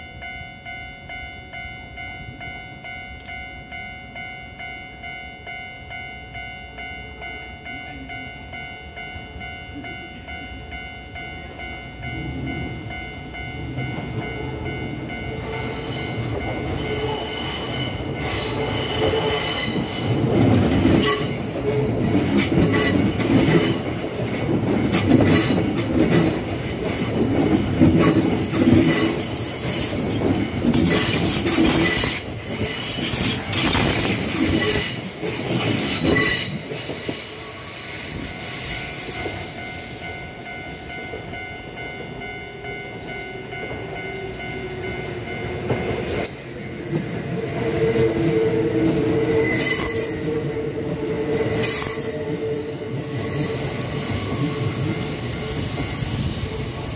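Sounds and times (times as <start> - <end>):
train wheels squealing on rails: 14.7 - 23.9, 24.9 - 41.9, 47.2 - 56.9.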